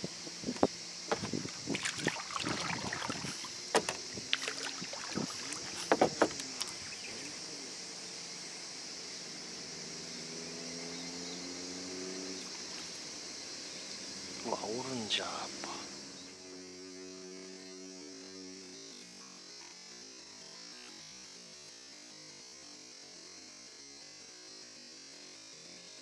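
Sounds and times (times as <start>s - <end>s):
faint steady hum: 0.0s - 10.1s
paddle knocking plastic hull: 0.5s - 6.8s
paddle strokes splashing: 1.1s - 7.1s.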